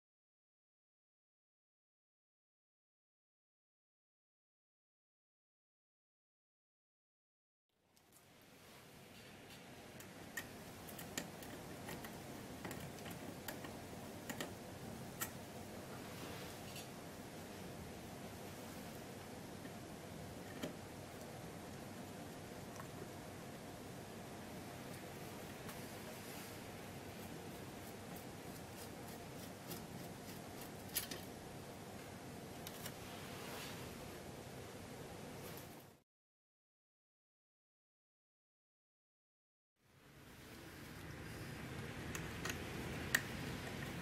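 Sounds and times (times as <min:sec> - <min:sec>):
steady hiss: 0:07.9 - 0:36.0.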